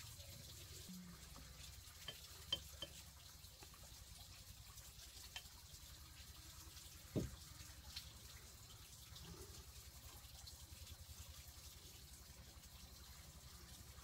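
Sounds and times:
dull thump: 7.1 - 7.4.

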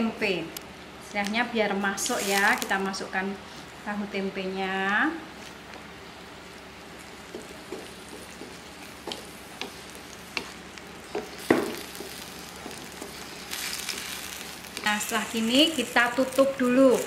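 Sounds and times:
sauce sizzling: 6.0 - 17.0.

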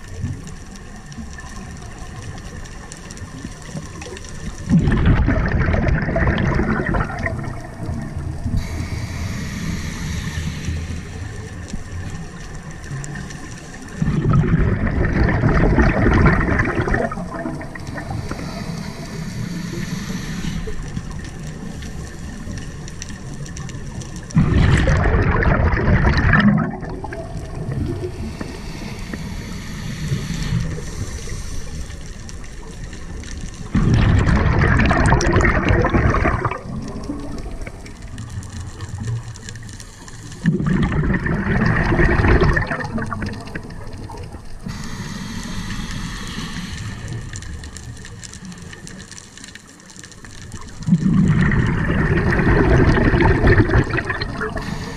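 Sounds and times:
exhaled bubbles rushing: 1.4 - 31.4, 32.3 - 44.8, 50.2 - 54.9
regulator hiss: 7.4 - 14.0, 17.1 - 23.0, 27.8 - 33.7, 43.6 - 48.9, 54.5 - 54.9.

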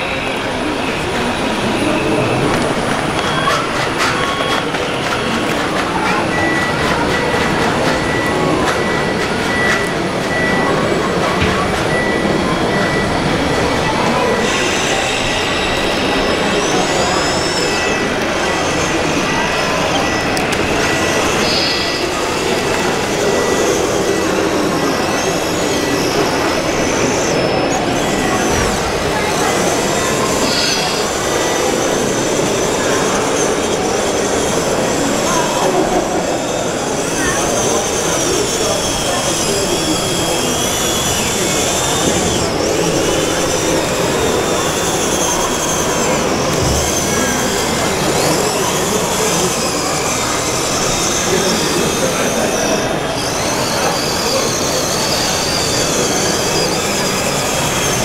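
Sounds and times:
crowd hubbub in a hall: 0.0 - 58.0
small electric motors whining: 0.0 - 58.0
toy dozer mechanical running: 0.0 - 58.0
faint high squeaks: 8.0 - 33.6.

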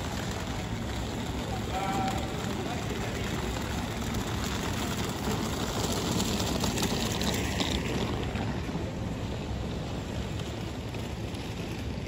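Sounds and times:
continuous rushing hiss: 0.0 - 12.0.

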